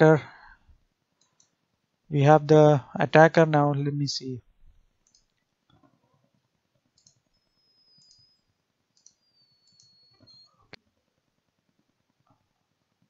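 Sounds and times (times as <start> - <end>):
computer mouse clicks: 5.0 - 5.4, 7.0 - 8.4, 9.0 - 10.5
faint high whine: 7.0 - 12.0.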